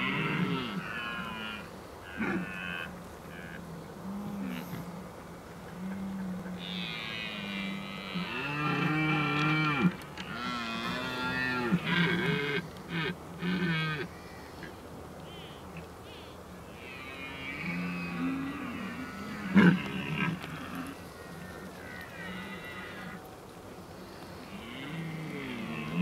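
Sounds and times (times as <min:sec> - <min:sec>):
deer stag roaring: 0:00.0 - 0:04.9, 0:16.8 - 0:23.2, 0:24.5 - 0:26.0.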